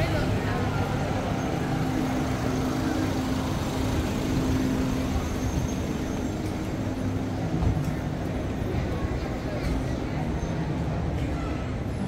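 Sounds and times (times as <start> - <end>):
van engine idling: 0.0 - 8.6.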